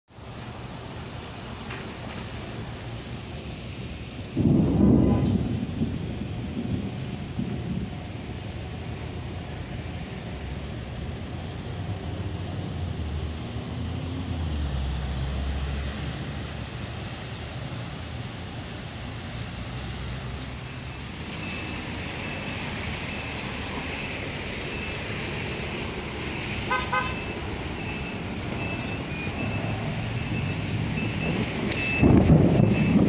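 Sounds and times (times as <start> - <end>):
street traffic noise: 0.1 - 33.0
car horn short toots: 26.7 - 27.2.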